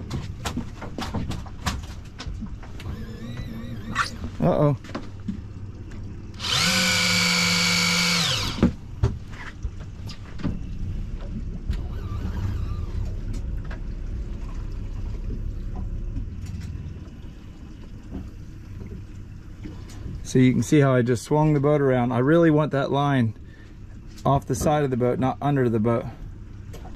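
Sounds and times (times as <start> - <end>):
outboard motor rumbling: 0.0 - 26.9
electric fishing reel motor whining: 2.8 - 4.3, 6.4 - 8.7, 11.8 - 13.0.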